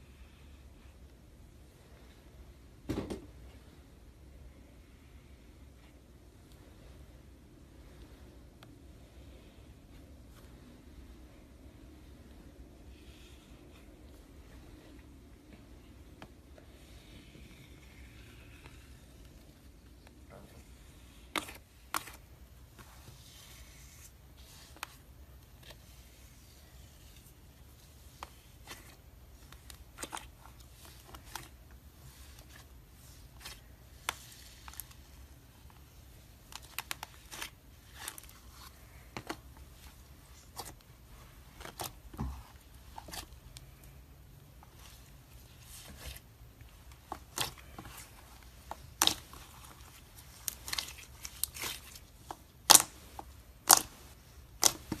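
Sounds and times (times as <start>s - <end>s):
slime popping and crackling: 52.6s - 55.0s.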